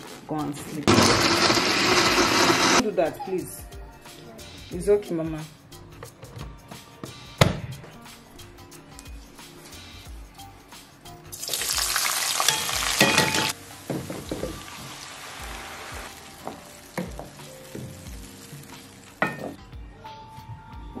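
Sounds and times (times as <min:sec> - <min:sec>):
knocks in pan: 0:12.5 - 0:14.6.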